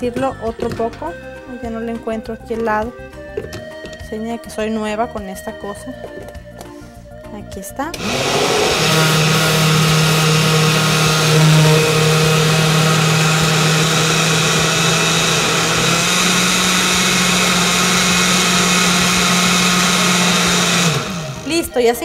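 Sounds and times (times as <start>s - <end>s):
blender motor running: 7.9s - 21.6s.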